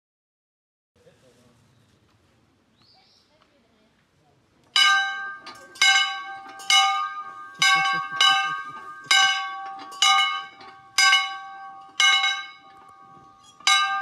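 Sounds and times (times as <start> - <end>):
farm bell ringing: 4.8 - 14.0.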